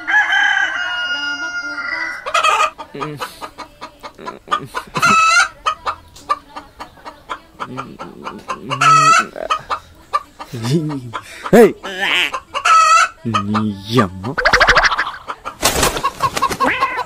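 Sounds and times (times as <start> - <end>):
rooster crowing: 0.0 - 2.4
hens clucking: 1.4 - 17.0.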